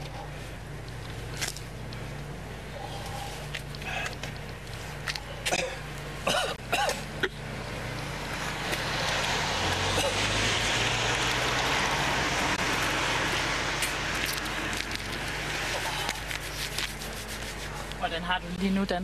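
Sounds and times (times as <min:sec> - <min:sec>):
people coughing and groaning: 0:05.4 - 0:07.4, 0:09.9 - 0:10.3
car rushing on road: 0:07.4 - 0:16.0.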